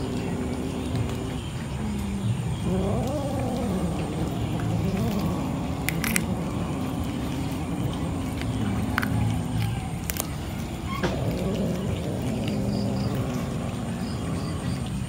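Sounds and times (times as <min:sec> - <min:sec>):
cat meowing: 0:00.9 - 0:14.0
sharp clicks: 0:05.8 - 0:06.3.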